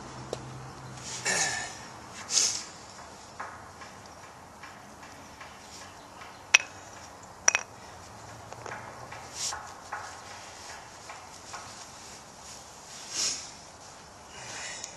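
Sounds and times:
wood scuffing on asphalt: 5.7 - 14.2
wooden knocks: 6.2 - 7.8.

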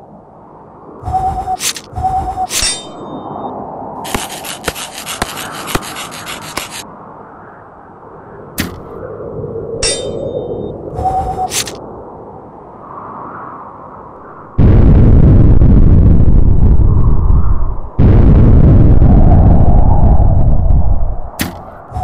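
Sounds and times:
metallic clangs: 1.6 - 3.2, 9.8 - 10.5.

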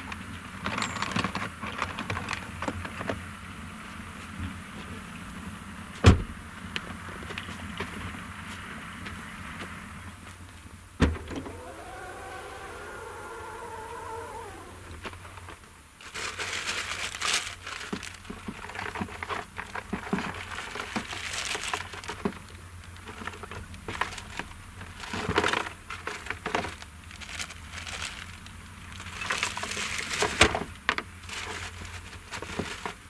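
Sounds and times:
low engine hum: 11.0 - 15.8.

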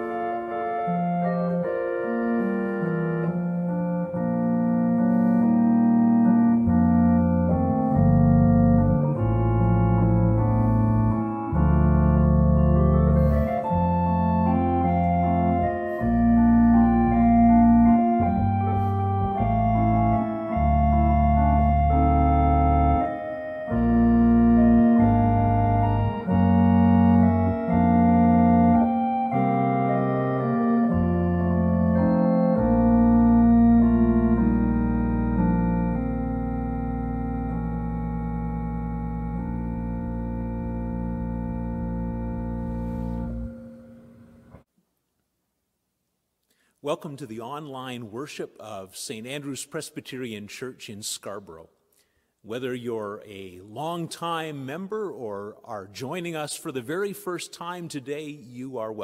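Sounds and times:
organ playing sustained chords: 0.0 - 44.6.

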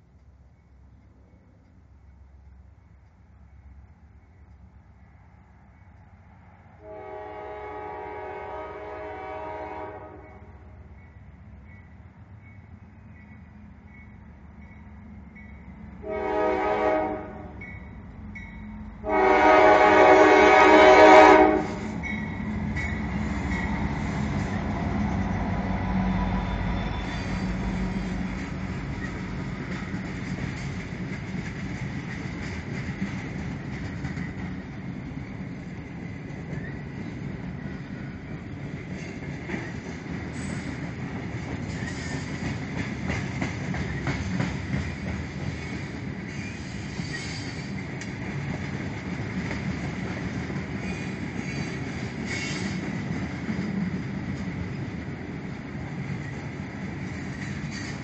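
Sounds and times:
locomotive rumble: 0.0 - 58.0
locomotive air horn blasts: 6.8 - 10.8, 16.0 - 17.6, 19.0 - 22.0
train cars rattling over rails: 7.0 - 58.0
railroad crossing bell dinging: 10.2 - 16.1, 17.4 - 19.1, 21.8 - 25.6.

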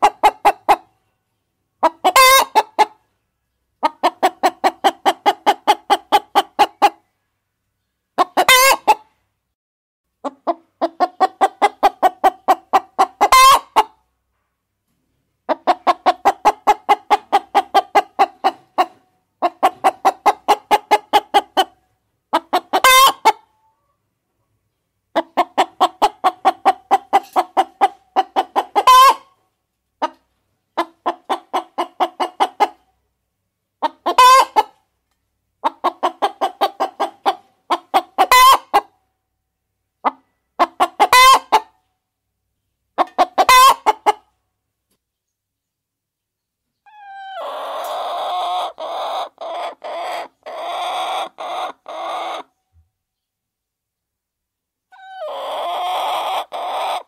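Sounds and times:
hen clucking: 0.0 - 1.0, 1.8 - 7.1, 8.2 - 9.2, 10.2 - 14.1, 15.4 - 24.0, 24.7 - 33.0, 33.8 - 34.9, 35.5 - 39.1, 40.0 - 41.9, 42.9 - 44.4, 46.7 - 52.8, 54.9 - 57.0
hen squawking: 46.9 - 52.4.

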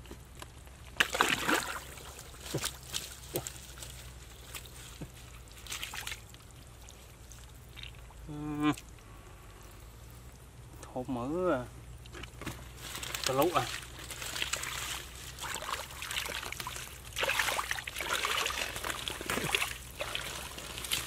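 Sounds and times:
wet mud squelching: 0.8 - 8.9, 12.0 - 21.0
low voiced call: 8.2 - 8.8.

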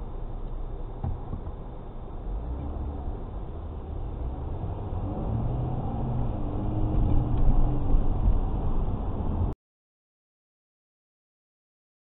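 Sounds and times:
car engine rumble: 0.0 - 9.6.

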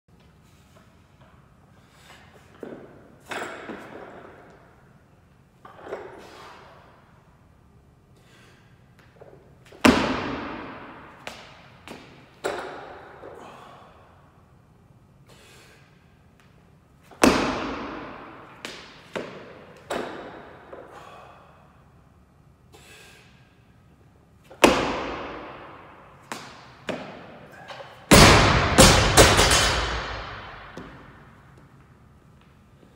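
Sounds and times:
barbell impacts echoing: 24.5 - 31.2.

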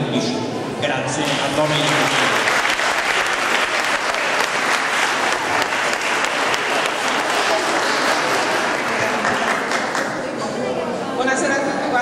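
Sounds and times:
audience applauding: 1.2 - 10.4.

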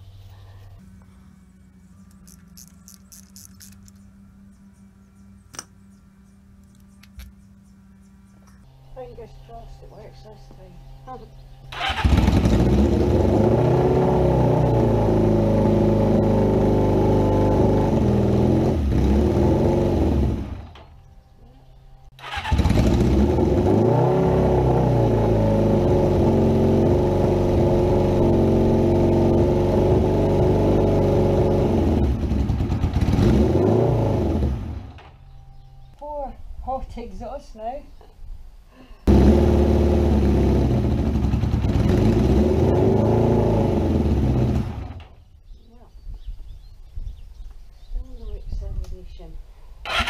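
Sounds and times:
motorcycle engine revving: 11.7 - 21.0, 22.1 - 35.4, 39.1 - 45.3.

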